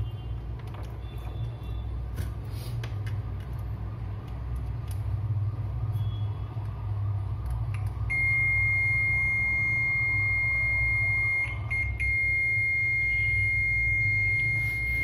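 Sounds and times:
multimeter continuity beep: 5.9 - 6.6, 8.0 - 15.0.

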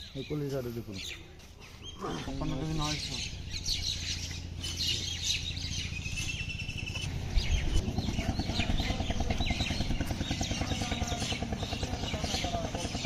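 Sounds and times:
engine rumbling: 0.0 - 13.0
small birds chirping: 0.0 - 13.0.

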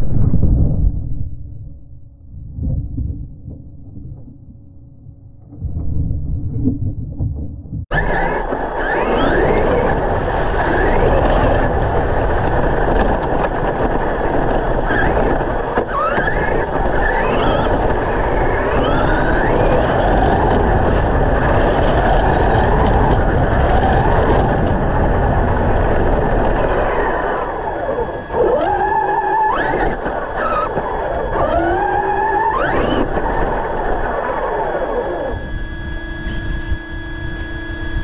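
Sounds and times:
loud steady rumbling: 0.0 - 38.0
electric motors whining: 7.9 - 38.0.

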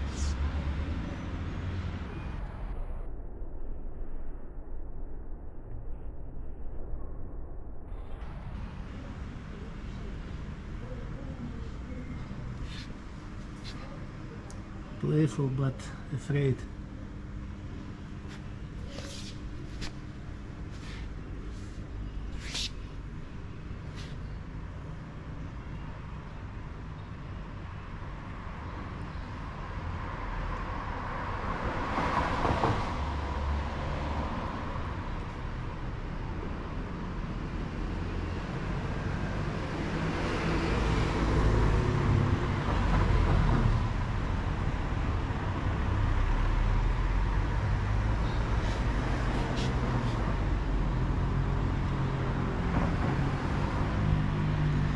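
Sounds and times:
passing cars rumbling: 0.0 - 3.1, 29.3 - 54.9.

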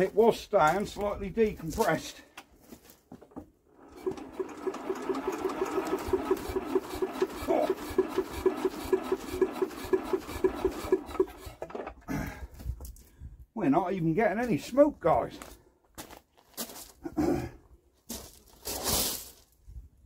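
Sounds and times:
engine hand-cranked turning over: 3.7 - 12.1.

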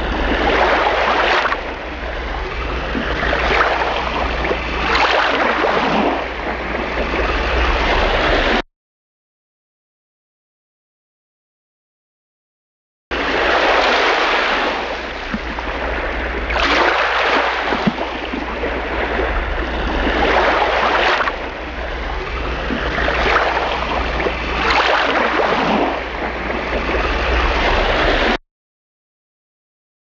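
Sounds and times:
sea waves washing ashore: 0.0 - 8.6, 13.1 - 28.4.

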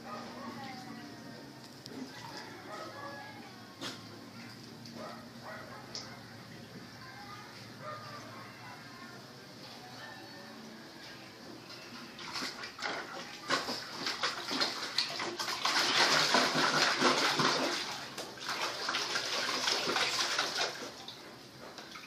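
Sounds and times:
water splashing in a basin: 12.0 - 21.2, 21.8 - 22.0.

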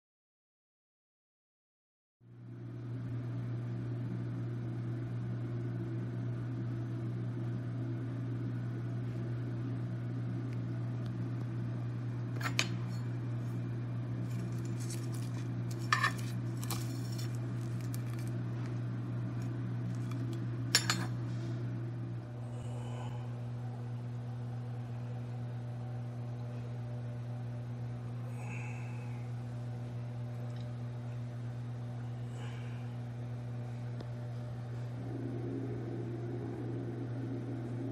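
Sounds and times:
steady low hum: 2.3 - 37.9
utensils clinking against dish: 15.7 - 16.8, 20.8 - 21.1.

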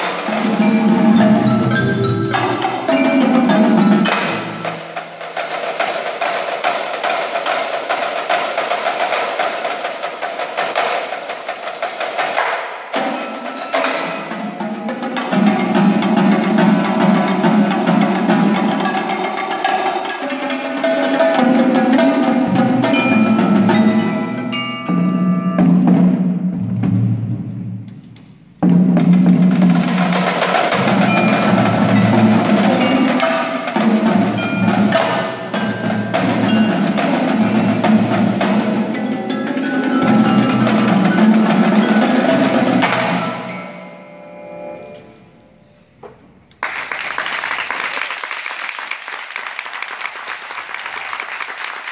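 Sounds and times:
percussion ensemble playing: 0.0 - 45.9
audience applause: 46.6 - 51.9.

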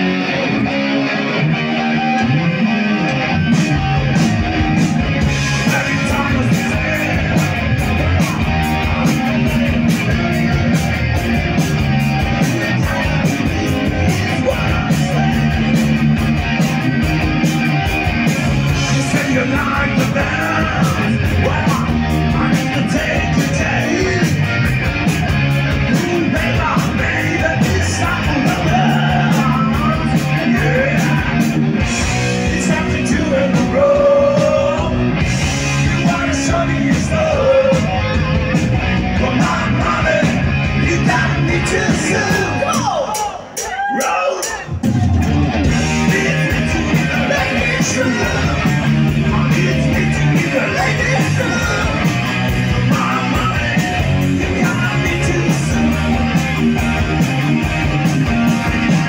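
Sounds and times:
bass guitar: 0.0 - 59.0
distorted electric guitars: 0.0 - 59.0
drum beat: 3.6 - 59.0
person singing: 4.1 - 11.0, 12.2 - 16.9, 18.5 - 24.6, 25.8 - 31.7, 32.3 - 38.4, 39.1 - 59.0.

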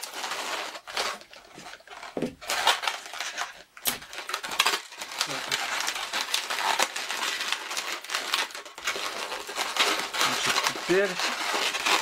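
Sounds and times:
balloons rubbing and squeaking: 0.0 - 12.0.

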